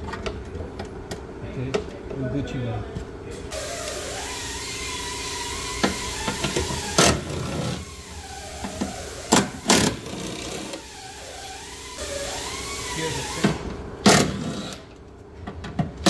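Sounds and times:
cordless drill running: 3.5 - 14.9.

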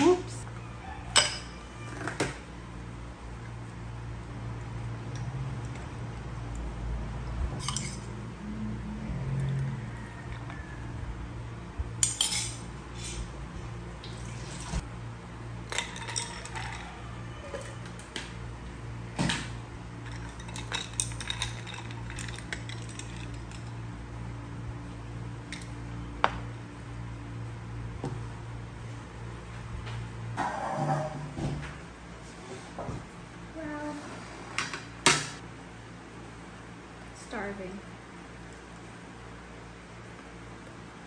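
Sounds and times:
steady low hum: 2.4 - 41.0
ice and straw clinking glass: 15.7 - 16.9, 20.0 - 23.7.

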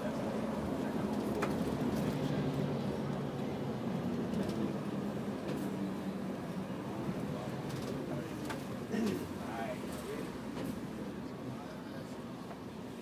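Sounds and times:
bus engine hum and road noise: 0.0 - 13.0.

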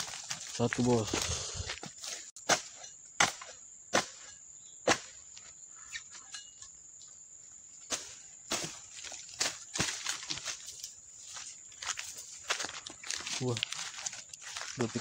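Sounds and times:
chisel blade chopping palm stalks: 1.8 - 5.2, 7.9 - 10.6.

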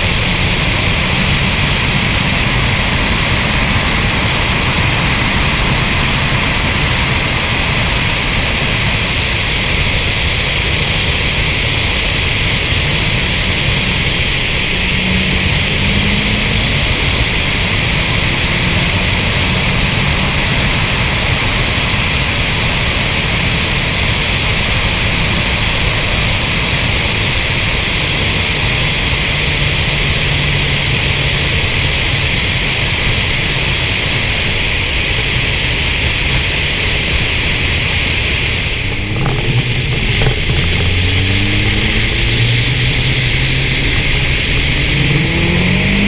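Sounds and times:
low engine drone: 0.0 - 46.0
wind rush and road noise: 0.0 - 46.0.

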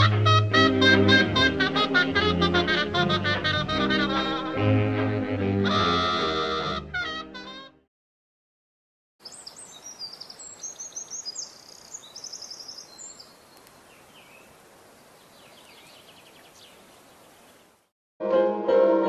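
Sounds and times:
birds chirping: 9.2 - 17.9
faint steady hiss: 9.2 - 17.9.

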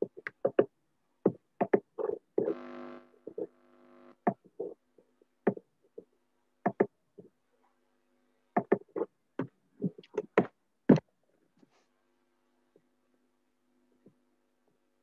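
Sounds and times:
faint steady hum: 2.4 - 8.6.

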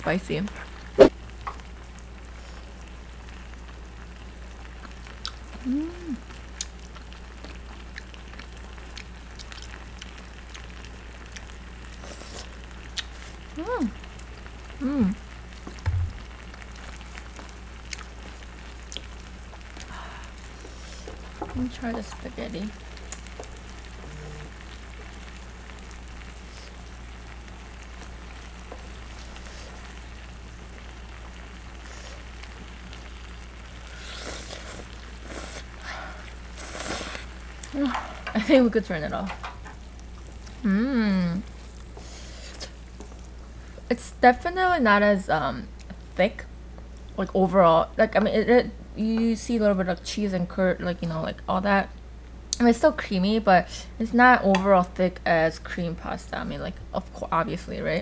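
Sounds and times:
sauce sizzling and bubbling: 0.0 - 58.0
steady low hum: 0.0 - 58.0
bubbles popping in sauce: 12.6 - 24.0.

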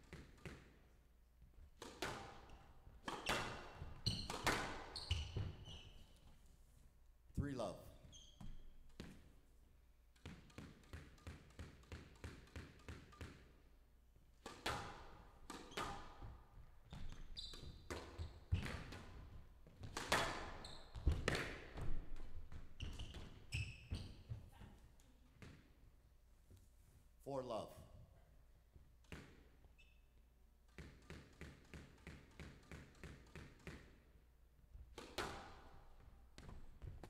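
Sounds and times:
racket striking ball: 1.8 - 5.0, 19.8 - 21.9, 34.9 - 35.8
ball hitting walls: 1.8 - 5.6, 14.4 - 24.4, 29.0 - 29.6, 34.8 - 37.0
squash ball bouncing: 1.8 - 5.6, 10.1 - 13.5, 14.4 - 24.4, 30.7 - 34.0, 34.8 - 37.0
shoes squeaking on court: 3.0 - 6.4, 7.9 - 9.3, 16.8 - 24.8, 29.7 - 30.2.

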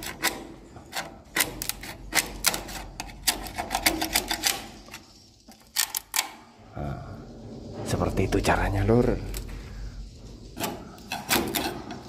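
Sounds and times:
metal tool scraping zinc sheet: 0.0 - 6.2, 10.5 - 12.0.

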